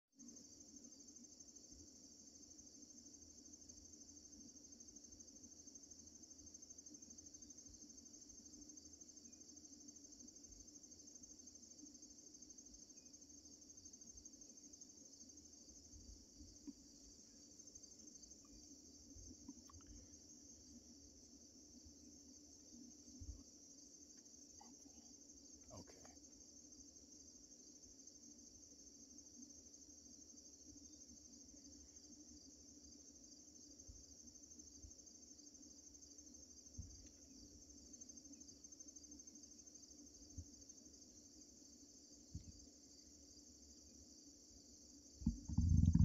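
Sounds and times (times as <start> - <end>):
insects trilling: 0.2 - 46.0
soft low bumps: 45.2 - 46.0.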